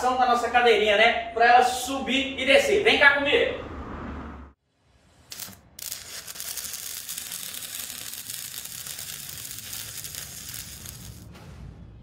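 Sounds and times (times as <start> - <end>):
arc welding crackling sizzle: 5.2 - 11.3.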